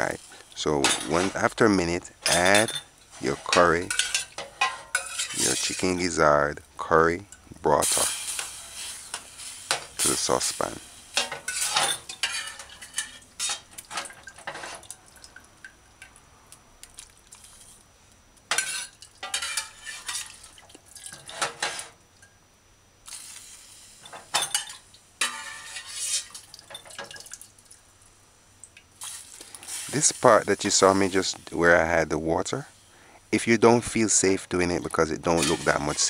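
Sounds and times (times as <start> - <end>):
liquid splashing and dripping: 13.7 - 17.5, 26.3 - 27.9.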